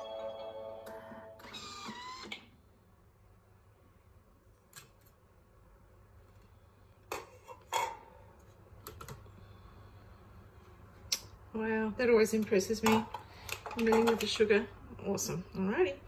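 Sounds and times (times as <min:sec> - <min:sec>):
food processor whine: 0:01.4 - 0:02.5.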